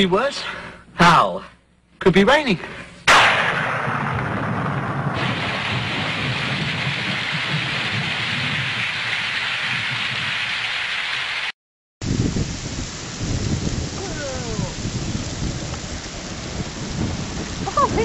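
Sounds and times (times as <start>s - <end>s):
hail falling: 3.2s - 11.5s, 12.1s - 18.0s
heavy rain: 3.2s - 18.0s.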